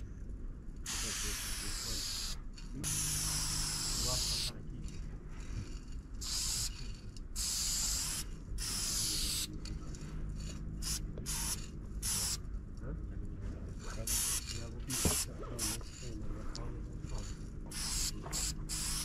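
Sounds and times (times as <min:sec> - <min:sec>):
spray paint can hissing: 0:00.8 - 0:04.6, 0:05.4 - 0:09.8, 0:10.4 - 0:12.5, 0:14.0 - 0:16.2, 0:17.1 - 0:19.0.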